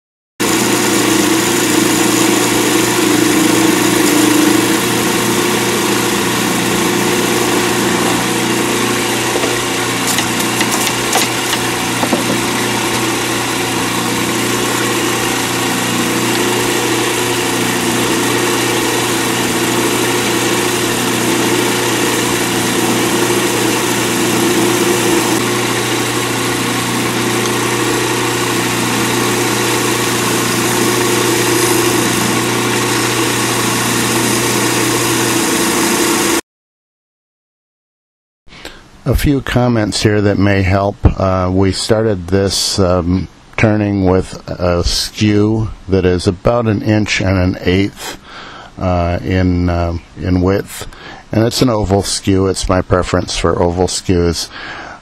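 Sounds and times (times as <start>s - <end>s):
chisel cutting hiss: 0.4s - 8.3s, 9.3s - 36.4s
lathe motor hum: 0.4s - 36.4s.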